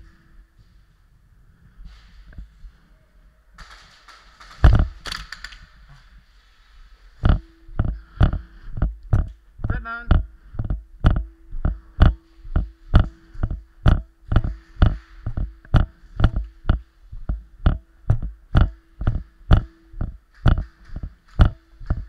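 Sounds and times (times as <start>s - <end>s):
faint steady hum: 0.0s - 22.0s
body-worn camera rattling while running: 3.6s - 5.6s, 7.2s - 22.0s.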